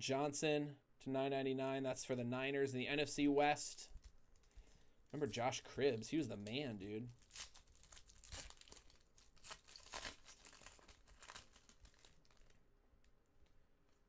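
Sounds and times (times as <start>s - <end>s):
foil wrapper crinkling: 4.0s - 14.0s.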